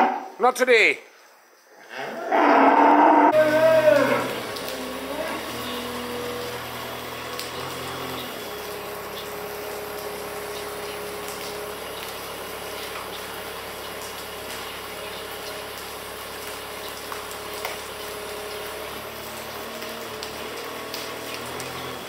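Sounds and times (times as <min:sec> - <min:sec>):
wheel loader whining: 0:03.3 - 0:12.2.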